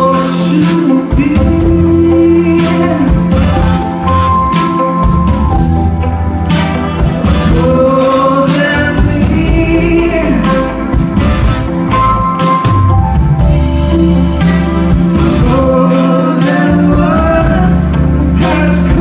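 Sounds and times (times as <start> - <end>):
person singing: 0.0 - 4.8, 7.2 - 11.1, 15.0 - 19.0
live band playing neo-soul: 0.0 - 19.0.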